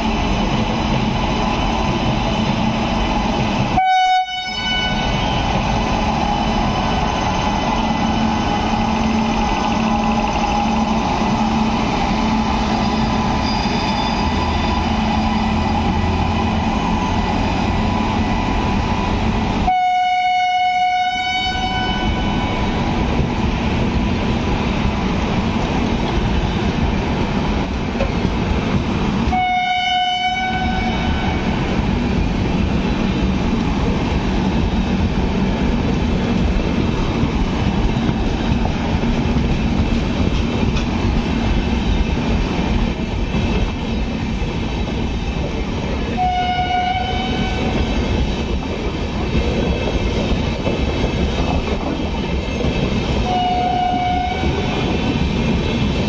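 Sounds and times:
train rolling on rails: 0.0s - 56.0s
train horn blasts: 3.7s - 5.2s, 19.6s - 22.6s, 29.3s - 31.6s, 46.2s - 47.8s, 53.2s - 54.8s.

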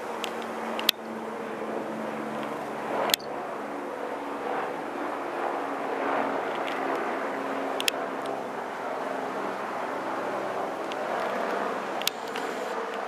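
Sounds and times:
honeybees buzzing: 0.0s - 13.0s
sharp clicks: 0.2s - 1.1s, 10.8s - 13.0s.

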